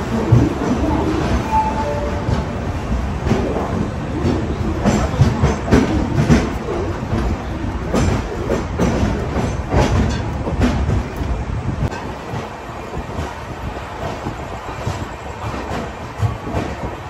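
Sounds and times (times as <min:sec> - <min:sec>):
wheels clacking over track: 0:00.0 - 0:13.4
train coach rumbling: 0:00.0 - 0:17.0.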